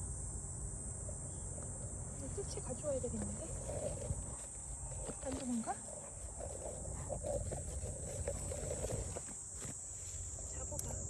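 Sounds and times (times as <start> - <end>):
steady high hiss: 0.0 - 11.0
leaves and stems rustling: 2.2 - 11.0.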